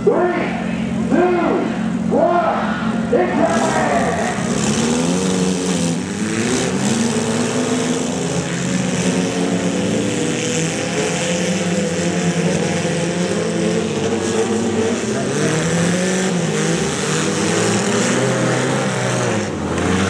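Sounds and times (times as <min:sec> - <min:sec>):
car engines revving: 0:00.0 - 0:20.0.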